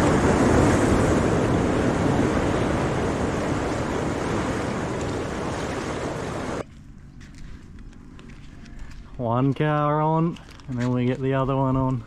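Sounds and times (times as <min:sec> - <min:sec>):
steady rushing noise: 0:00.0 - 0:06.8.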